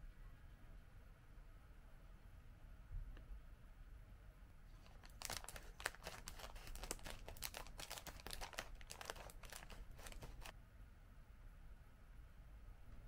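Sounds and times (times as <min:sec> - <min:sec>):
plastic bag crinkling: 0:04.7 - 0:10.5.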